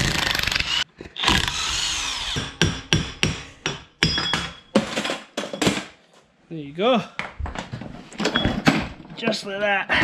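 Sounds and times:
sharp metal clanks and knocks: 0:02.5 - 0:06.0.

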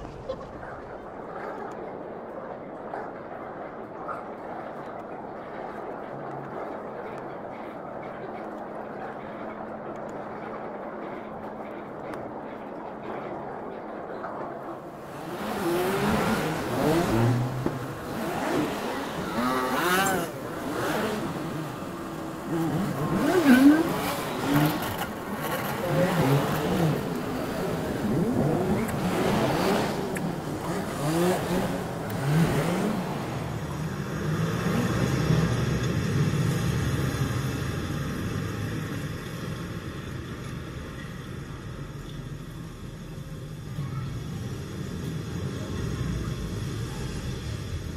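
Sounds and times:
low traffic rumble: 0:00.0 - 0:47.9
engines accelerating: 0:03.8 - 0:47.9
cars passing: 0:14.6 - 0:47.9.

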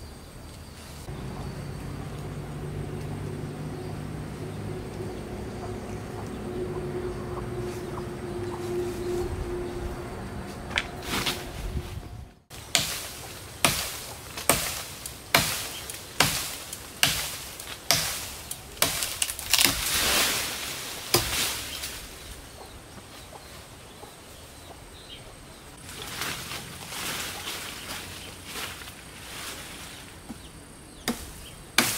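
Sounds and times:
blade strokes cutting branch: 0:10.4 - 0:11.8, 0:12.6 - 0:22.1, 0:31.1 - 0:31.9
leaves shaking swish: 0:10.4 - 0:22.4, 0:25.8 - 0:30.2.

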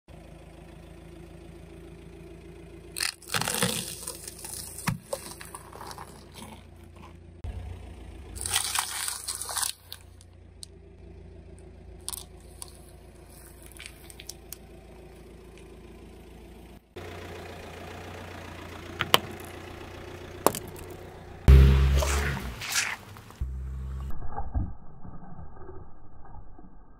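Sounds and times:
car engine idling: 0:00.1 - 0:24.1
car tyre crushing crunchy snacks: 0:02.9 - 0:10.8, 0:11.5 - 0:16.4, 0:18.8 - 0:23.5.

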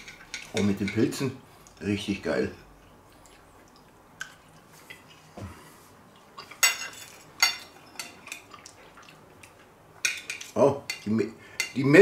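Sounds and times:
metal cutlery clinking on plate: 0:00.0 - 0:01.3, 0:06.4 - 0:08.5, 0:10.0 - 0:12.0.

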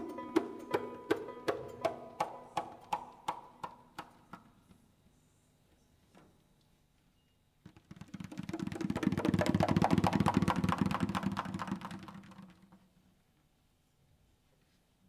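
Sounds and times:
hand drum roll: 0:00.0 - 0:04.5, 0:07.7 - 0:12.9.

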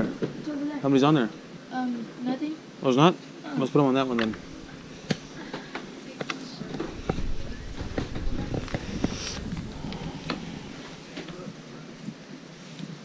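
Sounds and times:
wind rumble on microphone: 0:06.7 - 0:10.9.

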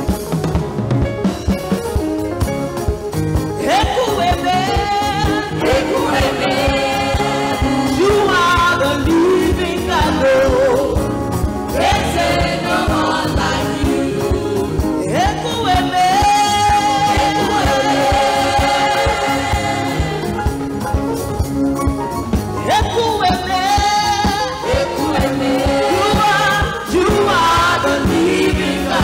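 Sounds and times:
drum kit and band: 0:00.0 - 0:29.0
several voices singing: 0:03.6 - 0:11.1, 0:11.7 - 0:20.7, 0:23.5 - 0:29.0.

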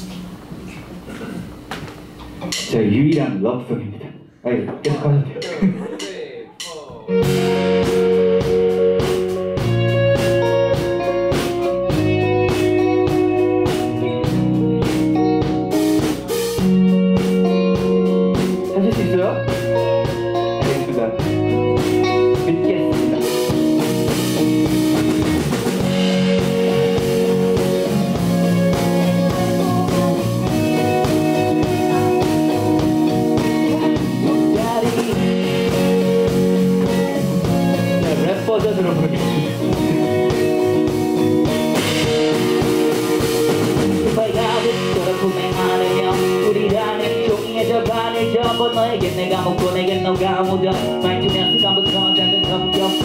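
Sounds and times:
live rock band playing: 0:06.6 - 0:53.0
person singing into microphone: 0:28.5 - 0:35.6, 0:44.0 - 0:53.0.

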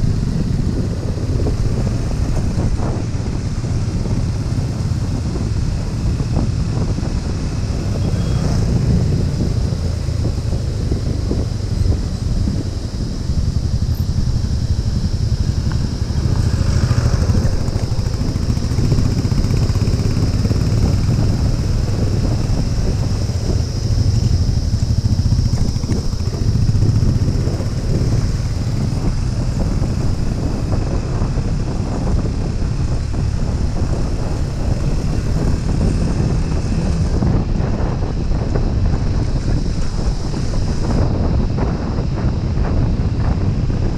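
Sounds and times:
motorcycle engine running: 0:00.0 - 0:43.9.

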